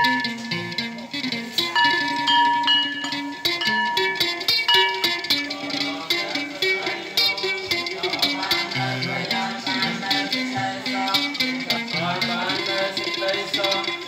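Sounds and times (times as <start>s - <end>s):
plucked string melody: 0.0s - 14.0s.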